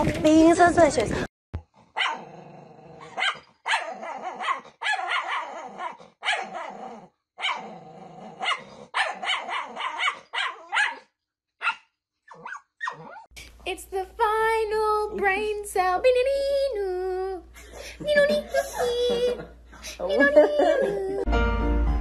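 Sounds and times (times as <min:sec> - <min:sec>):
dog growling: 0:01.7 - 0:10.8
small dog barking: 0:02.0 - 0:02.3, 0:03.0 - 0:06.8, 0:07.4 - 0:07.7, 0:08.4 - 0:13.2.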